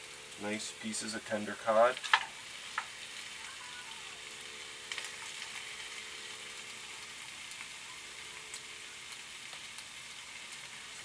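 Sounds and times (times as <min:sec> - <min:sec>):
faint crackles: 0:00.0 - 0:11.0
food sizzling in skillet: 0:00.0 - 0:11.0.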